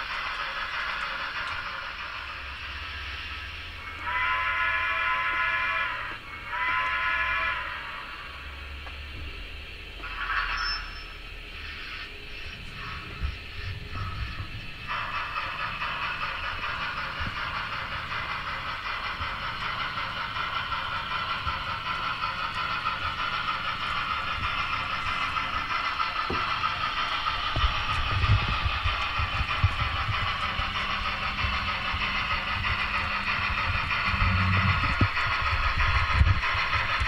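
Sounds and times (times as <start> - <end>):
model steam chuff and hiss: 0.0 - 37.0
wheels clattering on track: 12.6 - 37.0.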